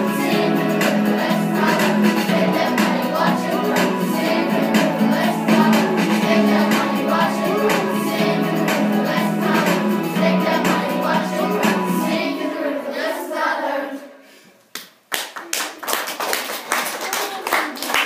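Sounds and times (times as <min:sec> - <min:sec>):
backing music: 0:00.0 - 0:13.6
children singing a pop song: 0:00.0 - 0:14.2
audience clapping: 0:14.7 - 0:18.0.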